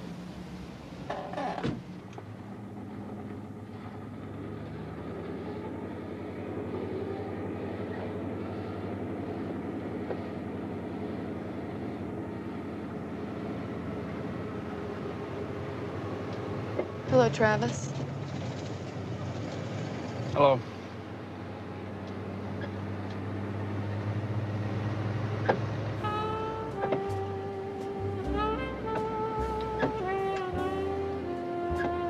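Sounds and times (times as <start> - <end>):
car engine and road noise: 0.0 - 32.0
car door shutting: 1.1 - 2.3, 26.6 - 30.8, 31.7 - 32.0.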